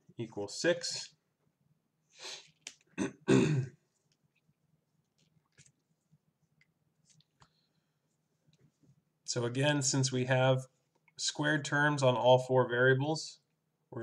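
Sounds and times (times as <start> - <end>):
person breathing: 2.1 - 2.6
person clearing throat: 3.0 - 3.8.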